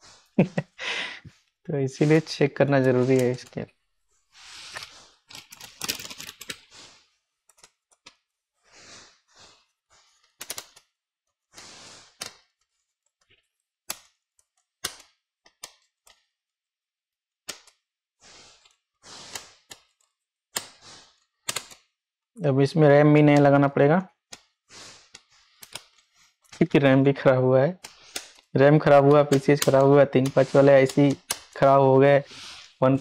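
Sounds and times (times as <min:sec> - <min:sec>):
small parts and tools clicking: 0:04.7 - 0:06.7, 0:07.5 - 0:08.3, 0:10.1 - 0:11.0, 0:12.1 - 0:16.4, 0:17.4 - 0:17.9, 0:18.5 - 0:22.0, 0:24.2 - 0:26.7, 0:27.8 - 0:31.8.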